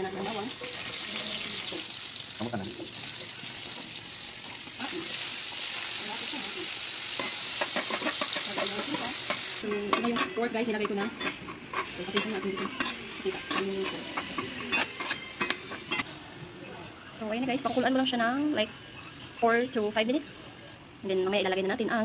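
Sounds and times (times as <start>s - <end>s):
vegetables sizzling in a frying pan: 0.0s - 16.1s
metal spoon scraping a pan: 7.1s - 16.1s.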